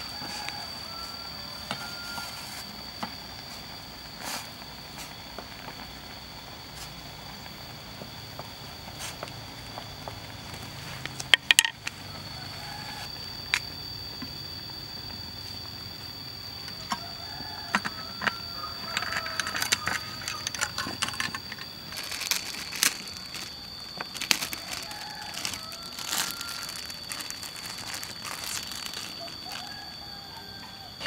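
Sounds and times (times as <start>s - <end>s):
forest insects droning: 0.0s - 31.0s
plastic packaging crinkling and tearing: 18.8s - 29.9s.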